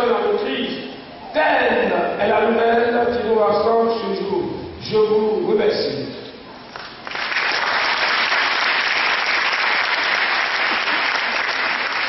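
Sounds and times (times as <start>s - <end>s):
congregation applauding: 6.8s - 12.0s.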